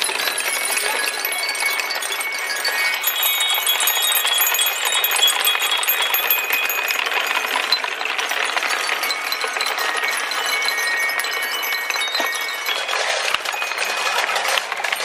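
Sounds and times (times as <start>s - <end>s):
glass marbles rattling on wood: 0.0s - 15.0s
marbles clinking on metal bars: 0.0s - 15.0s.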